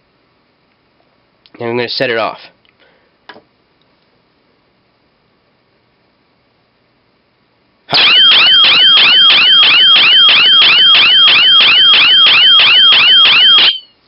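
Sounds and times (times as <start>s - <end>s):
electronic siren warbling: 7.9s - 13.9s.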